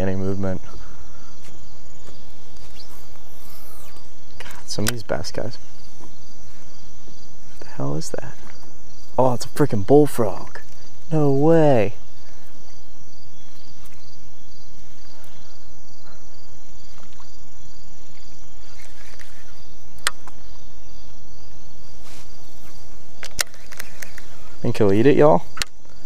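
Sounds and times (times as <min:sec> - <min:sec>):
insects chirping: 0:00.0 - 0:26.0
sharp clicks: 0:02.6 - 0:05.1.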